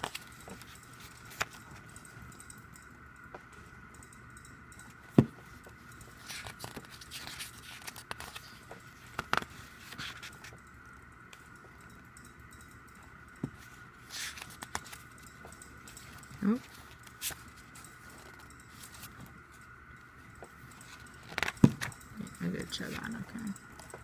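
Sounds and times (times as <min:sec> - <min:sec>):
faint steady high tone: 0:00.0 - 0:24.0
paper pages rustling: 0:06.1 - 0:10.6, 0:14.0 - 0:15.1, 0:16.1 - 0:19.2, 0:20.8 - 0:21.9.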